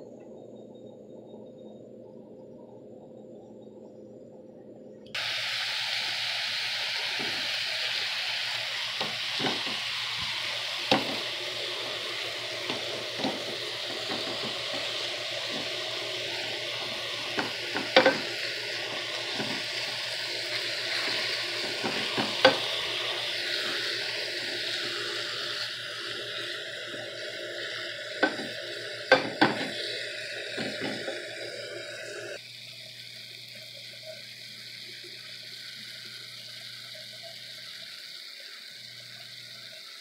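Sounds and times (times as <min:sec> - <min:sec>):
meat sizzling in a frying pan: 0:05.2 - 0:40.0.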